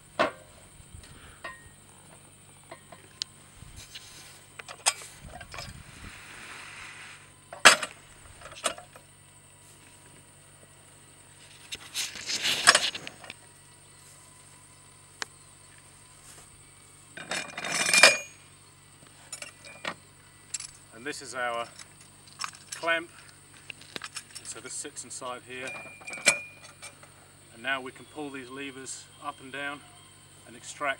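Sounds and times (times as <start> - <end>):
metal parts clattering and scraping: 11.4 - 13.3, 17.2 - 18.4, 21.6 - 23.0, 23.8 - 24.7, 25.6 - 27.0
metallic clinks and knocks: 17.2 - 18.4, 19.3 - 20.8, 25.6 - 27.1.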